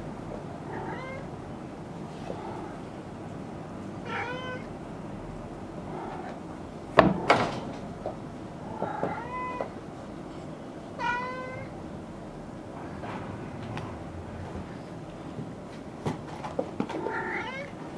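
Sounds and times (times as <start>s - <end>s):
kittens mewing: 0.6s - 1.3s, 4.0s - 4.8s, 8.6s - 9.8s, 11.0s - 11.8s.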